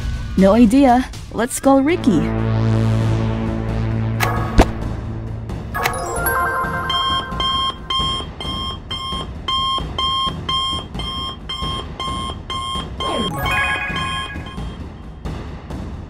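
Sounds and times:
electronic beep: 5.8s - 15.1s.

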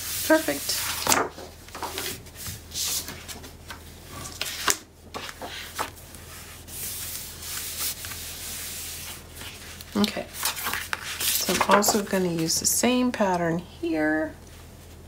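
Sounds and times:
paper sheets sliding: 0.0s - 3.5s, 4.1s - 12.5s
hands rubbing paper: 4.3s - 12.6s.

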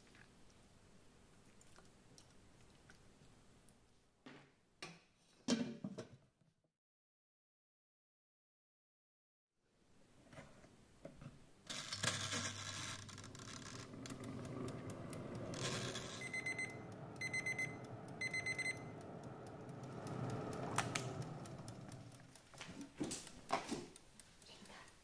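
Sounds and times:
oven fan humming: 11.7s - 24.3s
short trilling beeps: 15.6s - 19.5s.

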